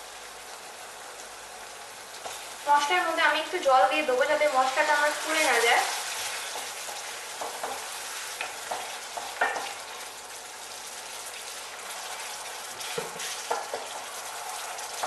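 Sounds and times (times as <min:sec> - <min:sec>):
paste sizzling in oil: 0:00.5 - 0:15.0.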